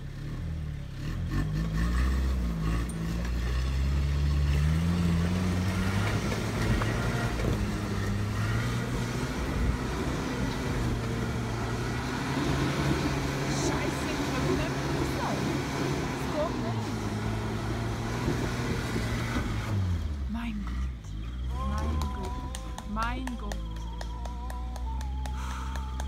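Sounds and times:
pickup truck engine under load: 0:00.0 - 0:26.0.

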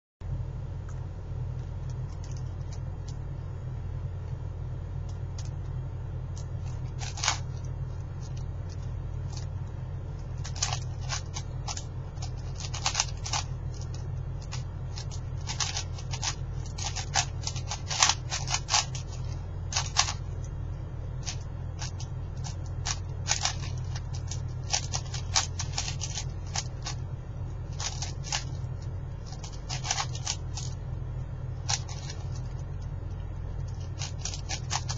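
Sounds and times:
steady low hum: 0:00.2 - 0:34.9
puzzle cube clicking: 0:10.4 - 0:20.6, 0:21.2 - 0:27.0, 0:27.7 - 0:30.8, 0:33.6 - 0:34.9.

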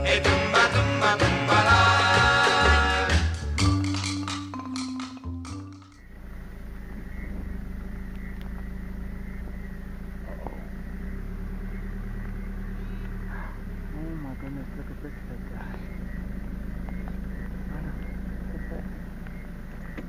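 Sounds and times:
music: 0:00.0 - 0:06.0
vehicle engine humming: 0:00.0 - 0:20.0.

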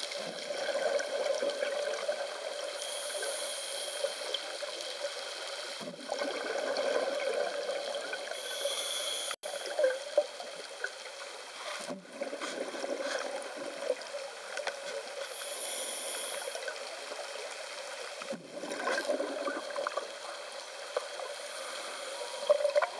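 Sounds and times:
hissy air bursts: 0:08.4 - 0:09.4, 0:15.3 - 0:16.6.

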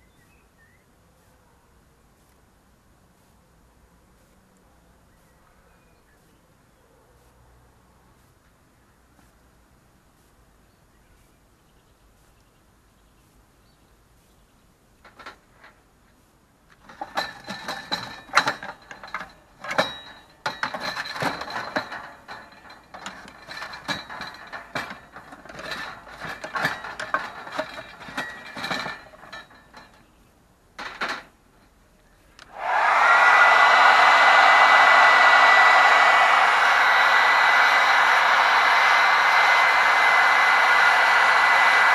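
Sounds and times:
clattering and clinking: 0:16.7 - 0:30.2, 0:30.8 - 0:31.7
hair dryer whining: 0:32.4 - 0:41.9.

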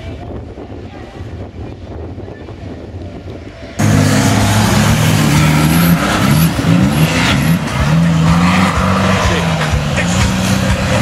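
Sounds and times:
off-road engine revving hard: 0:03.8 - 0:11.0.

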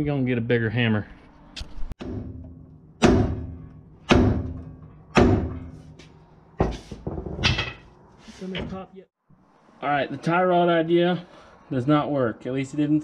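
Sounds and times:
hammer striking steel: 0:02.0 - 0:06.0.

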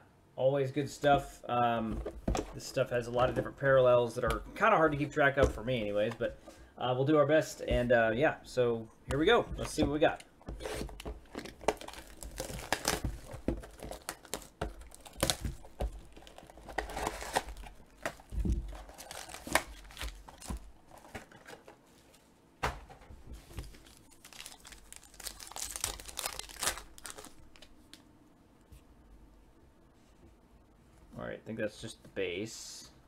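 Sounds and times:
plastic shrink-wrap crinkling and tearing: 0:10.6 - 0:20.6, 0:23.7 - 0:27.7
foil pack being torn open: 0:10.7 - 0:18.2, 0:18.8 - 0:20.5, 0:23.8 - 0:27.6.

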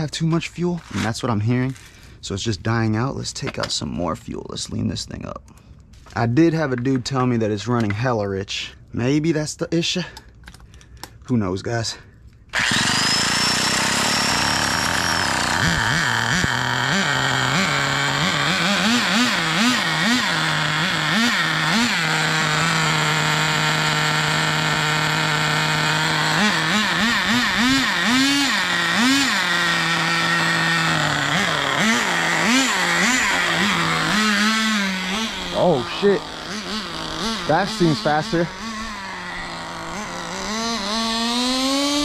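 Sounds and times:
small nitro engine revving: 0:12.5 - 0:42.0
high whine: 0:12.6 - 0:42.0.

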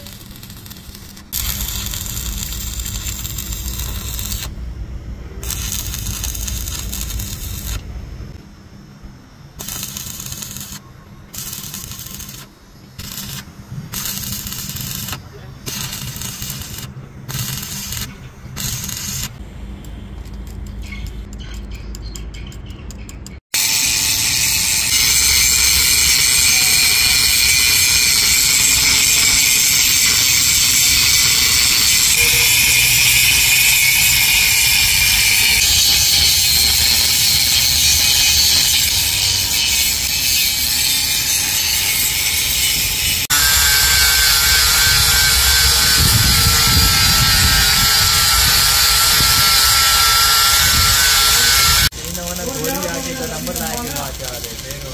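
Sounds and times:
angle grinder grinding steel: 0:00.0 - 0:04.6, 0:05.4 - 0:07.9, 0:09.6 - 0:19.4, 0:23.6 - 0:54.9
welding arc crackling: 0:00.0 - 0:08.4, 0:09.4 - 0:19.4, 0:23.5 - 0:54.9
sanding disc on steel: 0:23.6 - 0:54.9.

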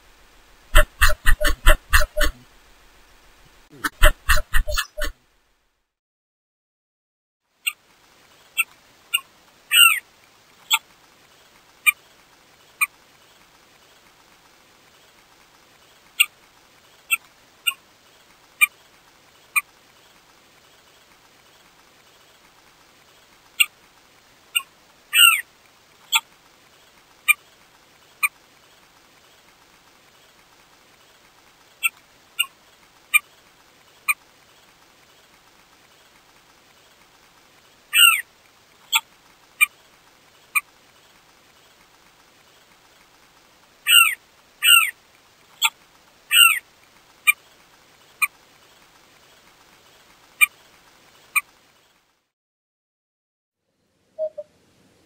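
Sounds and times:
bird short sharp calls: 0:00.7 - 0:02.4, 0:03.7 - 0:05.1, 0:54.2 - 0:54.5
bird wavering call: 0:54.2 - 0:54.5.

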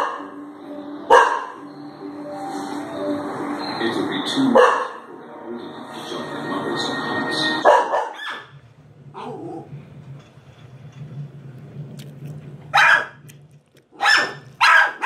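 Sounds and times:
dog barking: 0:00.0 - 0:00.3, 0:01.1 - 0:01.6, 0:04.5 - 0:05.0, 0:07.6 - 0:08.5, 0:12.7 - 0:13.2, 0:14.0 - 0:15.0
low steady hum: 0:08.5 - 0:14.6.

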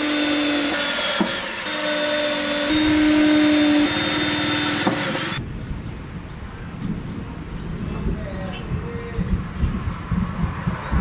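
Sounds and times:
cordless drill motor whine: 0:00.0 - 0:05.4.

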